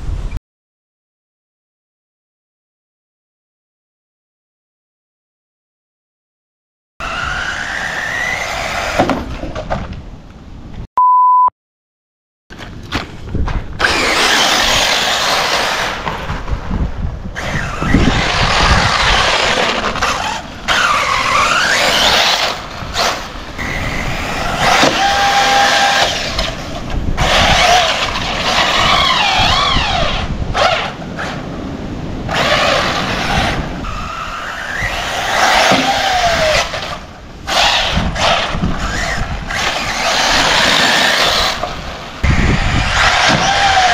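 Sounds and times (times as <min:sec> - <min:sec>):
rc car motor whine: 0:07.0 - 0:09.2, 0:13.8 - 0:16.1, 0:17.3 - 0:31.4, 0:32.3 - 0:43.9
tires tearing across dirt: 0:07.0 - 0:10.1, 0:12.5 - 0:43.9.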